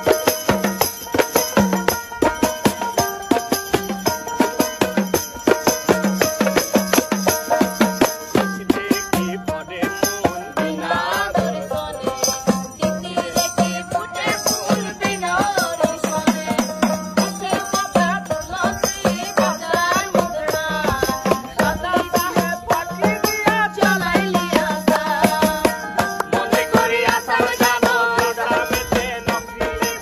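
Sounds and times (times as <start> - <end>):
banjo: 0.0 - 30.0
tambourine jingles: 0.0 - 30.0
woman singing folk song: 10.4 - 30.0.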